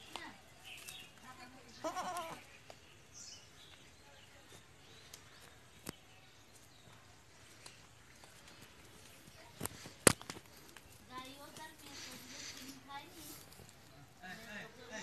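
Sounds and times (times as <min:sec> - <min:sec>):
goat bleating: 0:01.7 - 0:02.4.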